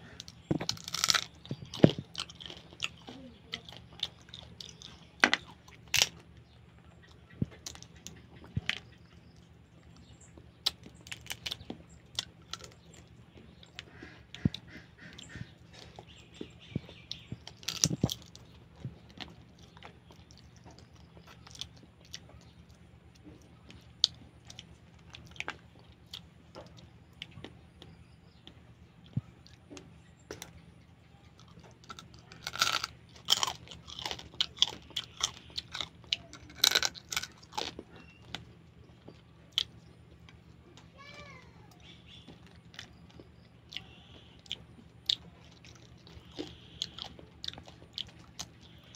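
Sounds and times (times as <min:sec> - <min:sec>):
chewing: 0:00.0 - 0:40.9, 0:41.8 - 0:48.9
crab shell cracking and crunching: 0:00.2 - 0:06.3, 0:10.6 - 0:13.0, 0:17.5 - 0:18.5, 0:31.4 - 0:40.4, 0:43.8 - 0:48.9.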